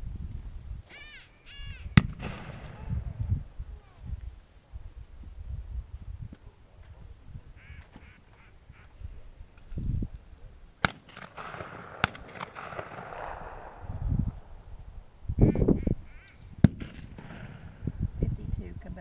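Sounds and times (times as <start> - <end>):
distant gunshots: 2.0 - 3.0, 10.8 - 14.0, 16.6 - 17.8
duck call quacking: 7.6 - 9.0, 15.4 - 16.4.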